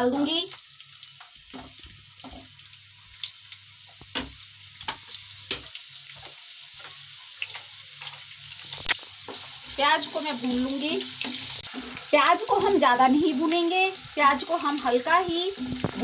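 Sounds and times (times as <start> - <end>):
onions sizzling in hot oil: 0.0 - 16.0
oil popping: 15.6 - 16.0.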